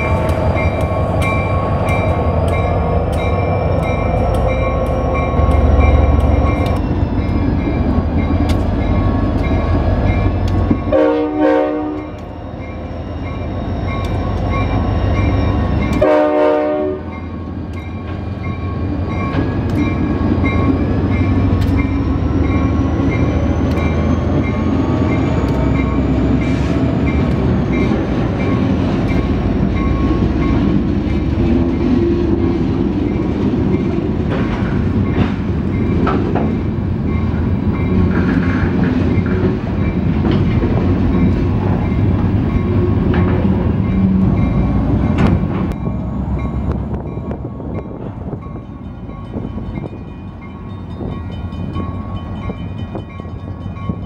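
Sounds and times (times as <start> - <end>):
locomotive bell ringing: 0.0 - 34.1, 34.9 - 38.4, 39.0 - 43.1, 43.7 - 54.0
locomotive engine rumbling: 0.0 - 54.0
train horn blasts: 10.8 - 12.2, 15.9 - 17.2.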